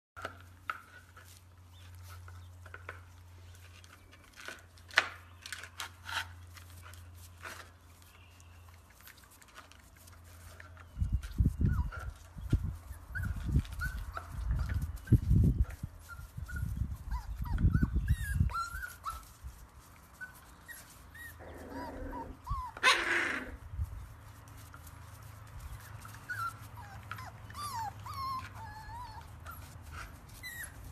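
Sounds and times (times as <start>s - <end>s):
puppies scuffling: 0.2s - 30.9s
puppy harsh cry: 21.3s - 23.6s.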